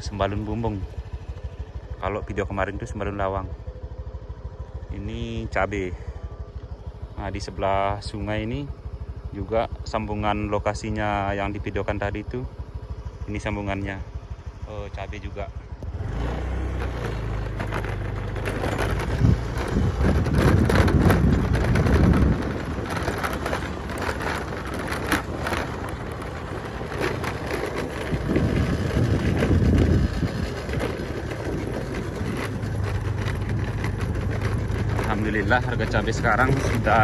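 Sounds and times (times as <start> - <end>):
motorcycle engine hum: 0.0 - 37.0
tyres rumbling on rough track: 0.0 - 37.0
wind buffeting microphone: 16.9 - 37.0.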